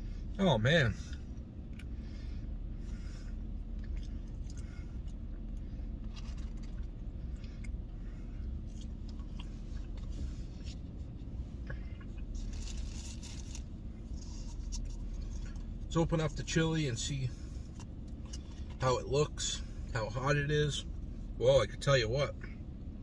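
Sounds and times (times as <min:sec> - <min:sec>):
steady low hum: 0:00.0 - 0:23.0
person chewing food: 0:03.3 - 0:10.9.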